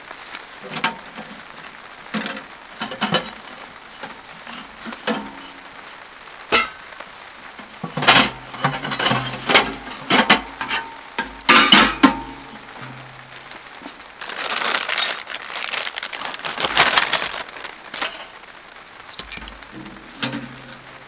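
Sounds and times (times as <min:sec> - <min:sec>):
metal stove parts clanking: 0:06.6 - 0:06.8, 0:11.5 - 0:12.2
plastic bag rustling: 0:12.2 - 0:21.0.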